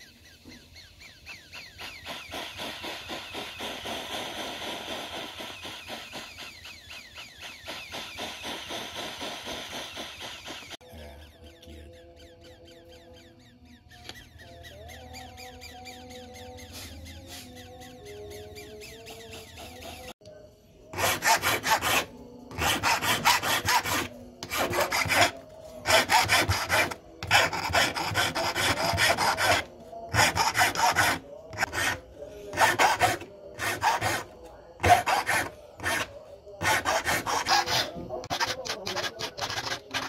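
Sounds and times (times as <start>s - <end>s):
hand file rasping on metal: 20.9s - 40.0s.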